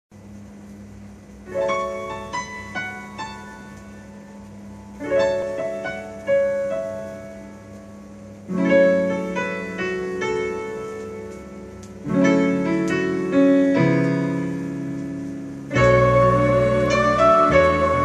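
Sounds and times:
keyboard chords: 0:01.4 - 0:18.0
low held note: 0:11.5 - 0:18.0.

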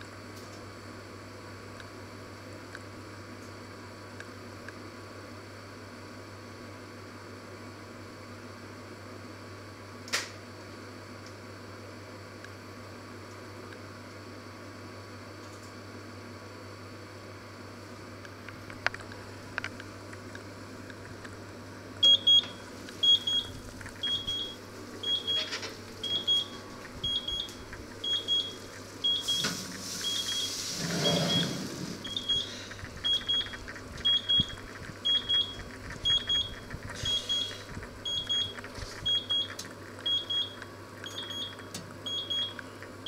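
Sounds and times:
oven timer beeping: 0:22.0 - 0:42.8.

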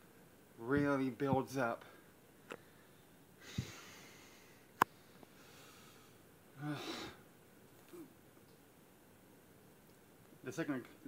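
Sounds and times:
man breathing out through nose: 0:02.6 - 0:04.7, 0:05.3 - 0:07.2.

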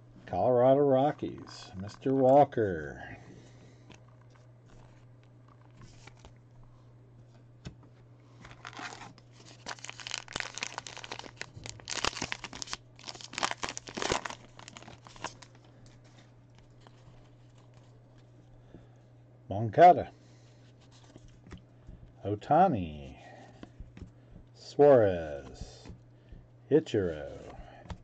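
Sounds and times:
wrapper tearing and crinkling: 0:08.5 - 0:15.6.

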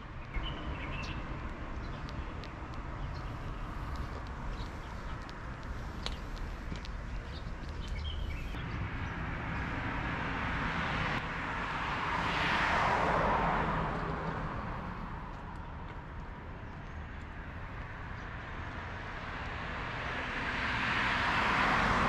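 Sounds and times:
vehicle passing on road: 0:00.0 - 0:22.0.

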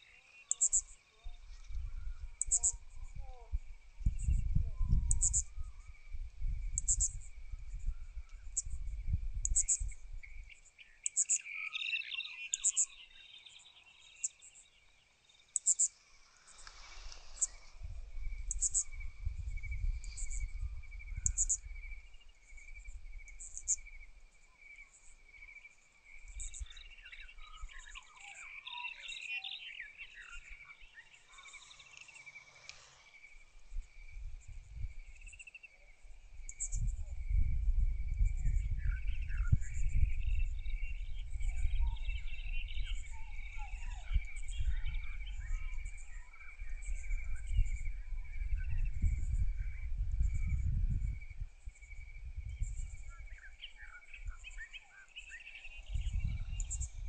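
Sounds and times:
crickets trilling: 0:00.0 - 0:57.0
wind buffeting microphone: 0:01.3 - 0:10.6, 0:16.8 - 0:24.1, 0:33.3 - 0:35.4, 0:36.1 - 0:54.7, 0:55.7 - 0:57.0.

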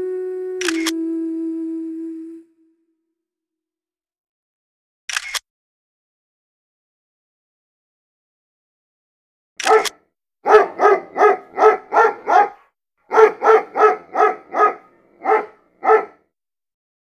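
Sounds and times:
dog barking: 0:09.6 - 0:16.2.

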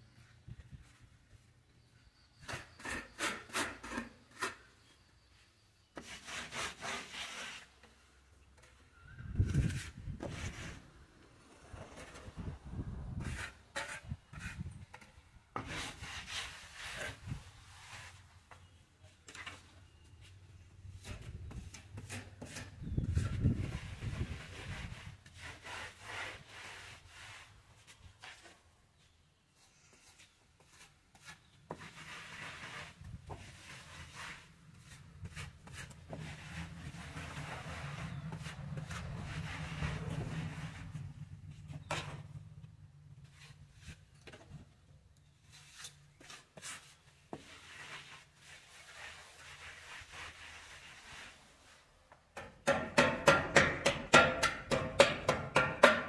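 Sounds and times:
plastering float scraping plaster: 0:02.4 - 0:05.1, 0:05.9 - 0:18.8, 0:21.0 - 0:28.6, 0:30.0 - 0:42.3, 0:45.2 - 0:56.0
low steady rumble: 0:36.8 - 0:43.8.

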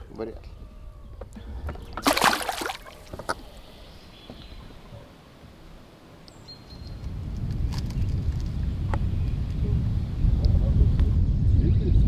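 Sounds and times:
water splash: 0:02.0 - 0:03.4.

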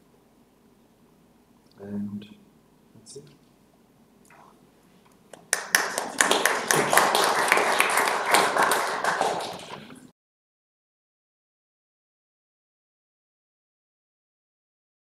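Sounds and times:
audience applauding: 0:05.3 - 0:10.1.

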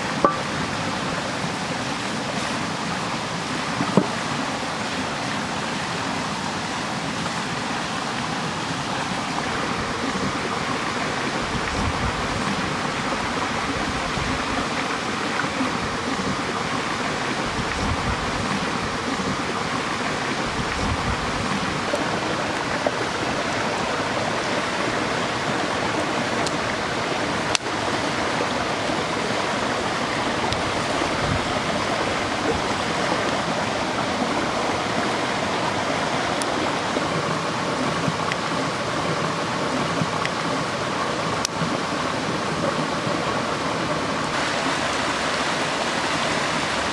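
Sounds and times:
forest stream rushing: 0:00.0 - 0:46.9.

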